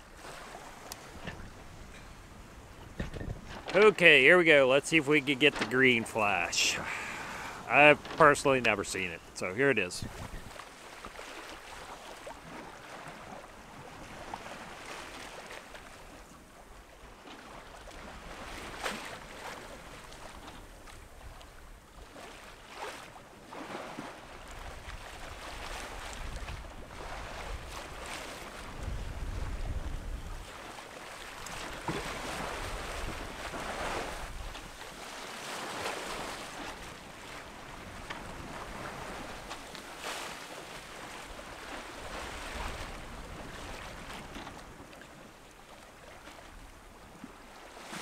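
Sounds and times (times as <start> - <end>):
waves splashing against hull: 0.0 - 48.0
wind buffeting microphone: 0.7 - 3.7, 10.0 - 10.6, 28.7 - 30.5.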